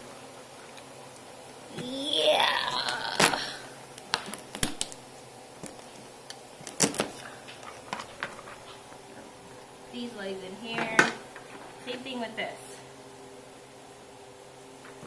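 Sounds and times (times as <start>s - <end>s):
knife cracking crab shell: 2.8s - 5.0s, 5.6s - 7.9s.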